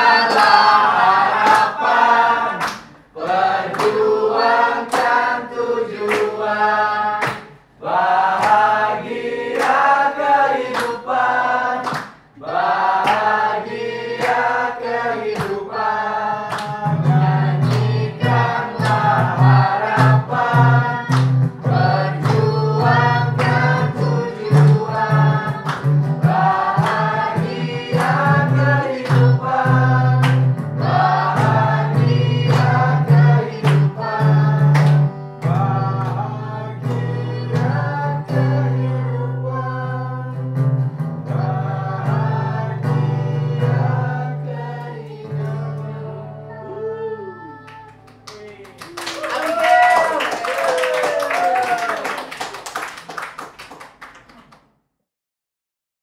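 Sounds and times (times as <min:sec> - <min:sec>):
people singing in chorus: 0:00.0 - 0:40.6, 0:41.2 - 0:48.1
hand claps: 0:00.2 - 0:00.7, 0:01.4 - 0:02.0, 0:02.6 - 0:05.3, 0:06.0 - 0:06.4, 0:07.2 - 0:07.6, 0:08.3 - 0:08.7, 0:09.5 - 0:09.9, 0:10.6 - 0:11.0, 0:11.8 - 0:12.3, 0:13.0 - 0:13.5, 0:14.1 - 0:15.8, 0:16.5 - 0:16.8, 0:17.6 - 0:30.6, 0:31.4 - 0:34.0, 0:34.6 - 0:36.2, 0:47.7 - 0:54.8
strummed acoustic guitar: 0:16.6 - 0:46.4.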